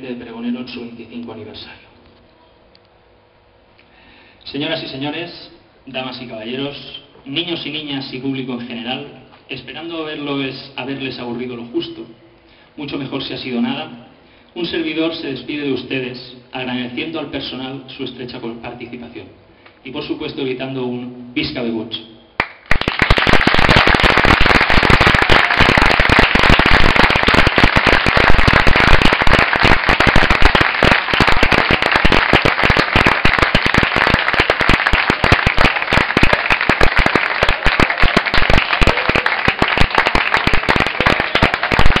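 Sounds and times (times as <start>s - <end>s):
firecrackers crackling: 22.7s - 42.0s.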